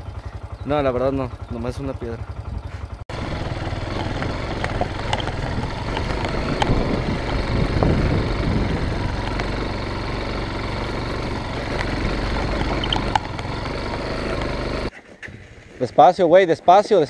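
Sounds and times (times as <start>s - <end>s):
motorcycle engine at low revs: 0.0s - 15.8s
stones clicking under tyres: 3.4s - 15.0s.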